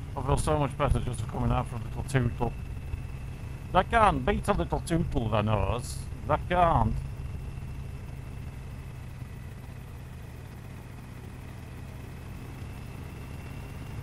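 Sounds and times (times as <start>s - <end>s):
motorcycle engine droning: 0.0s - 14.0s
road and wind hiss: 0.0s - 14.0s.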